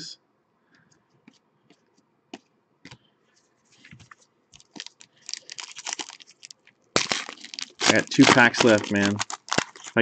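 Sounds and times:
card wrapper crinkling: 4.0s - 10.0s
cards clicking and snapping: 7.0s - 10.0s.

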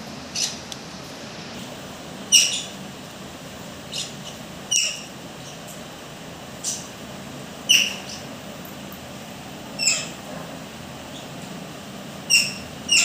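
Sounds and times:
parrots squawking: 2.3s - 2.8s, 3.9s - 5.2s, 7.7s - 8.3s, 9.8s - 10.2s, 12.2s - 13.0s.

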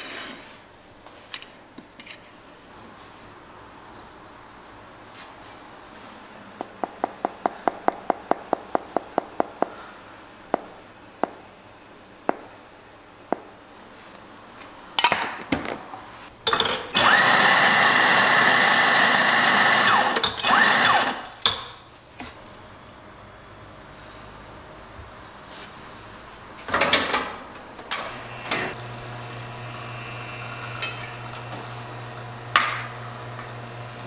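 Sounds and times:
electric coffee grinder running: 17.0s - 21.3s, 28.2s - 34.0s.

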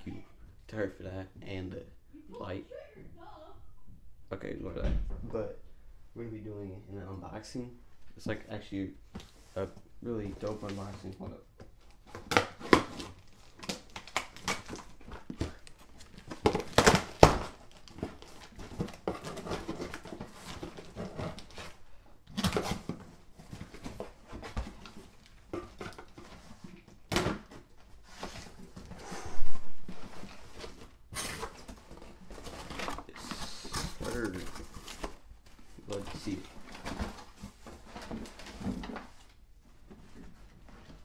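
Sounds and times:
cardboard rustling and scraping: 12.0s - 41.0s.

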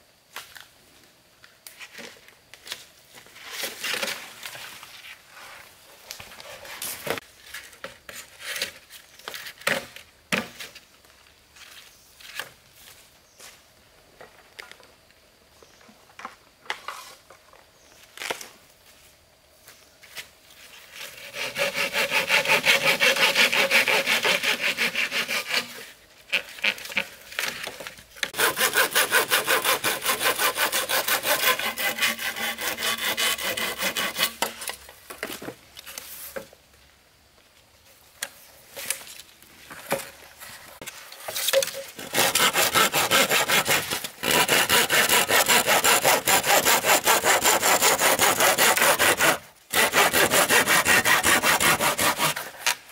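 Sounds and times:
hand saw cutting bamboo: 21.0s - 27.5s, 28.2s - 34.7s, 41.5s - 52.8s.

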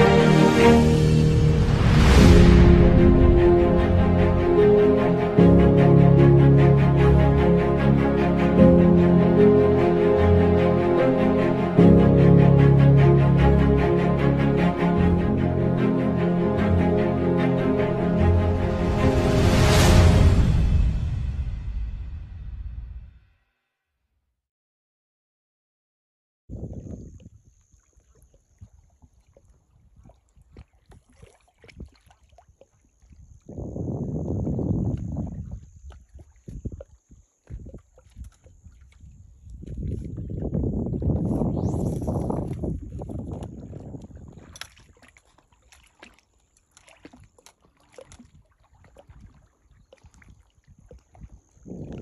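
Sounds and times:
wind buffeting microphone: 26.5s - 27.5s, 33.2s - 45.0s, 50.0s - 52.0s
small waves lapping: 27.1s - 33.7s, 34.9s - 40.5s, 42.5s - 52.0s.

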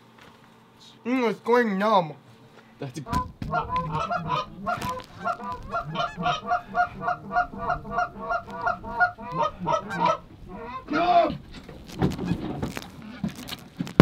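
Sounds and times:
geese honking: 3.0s - 11.4s.

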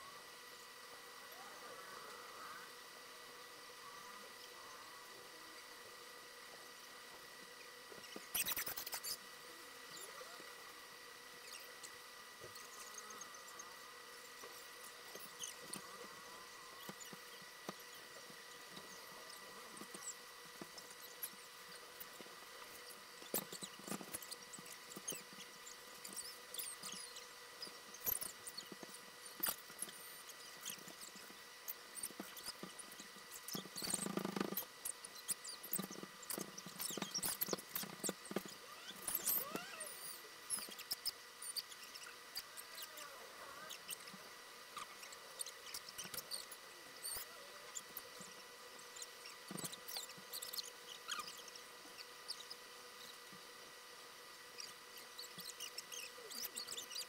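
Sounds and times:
faint high whine: 0.0s - 57.0s.

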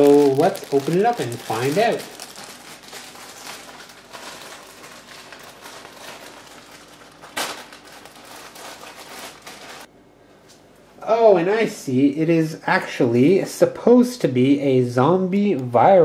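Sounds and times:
plastic packaging crinkling: 0.0s - 9.9s.

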